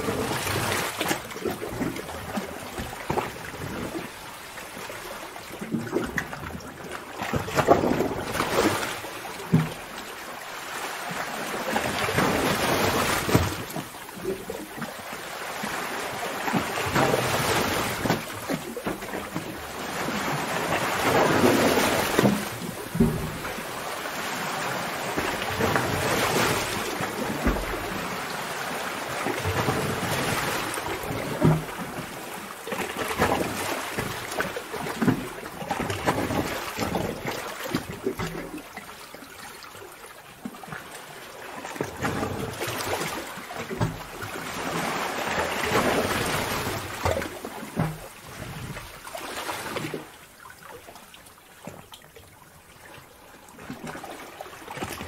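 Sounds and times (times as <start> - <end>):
low thuds and splashes: 5.6 - 10.0, 11.8 - 14.6, 16.5 - 23.8, 25.1 - 28.3, 29.2 - 38.6, 41.8 - 50.1
waves crashing against rocks: 10.7 - 13.8, 15.3 - 35.2, 44.2 - 47.4.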